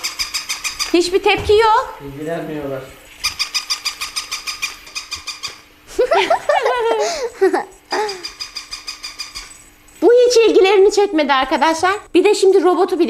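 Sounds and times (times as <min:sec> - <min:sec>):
high giggling toy voice: 0:06.0 - 0:08.9.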